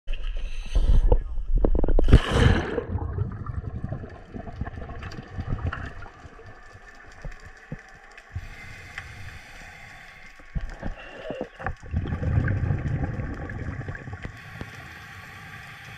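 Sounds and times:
faint underwater clicks and knocks: 0.2s - 2.2s, 4.0s - 14.8s
muffled underwater rumbling: 0.6s - 9.5s, 10.5s - 14.4s
water splashing and bubbles: 1.6s - 14.9s.

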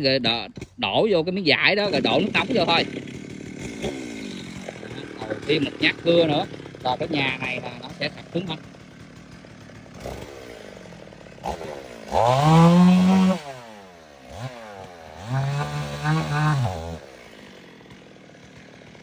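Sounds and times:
chainsaw idling and revving: 0.0s - 19.0s.

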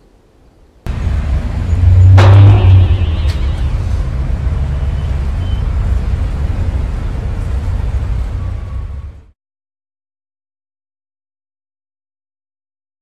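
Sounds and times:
heavy low boom: 0.9s - 5.4s
deep rumble: 0.9s - 9.3s
steady low drone: 0.9s - 9.3s
sharp ringing hit: 1.7s - 4.1s.

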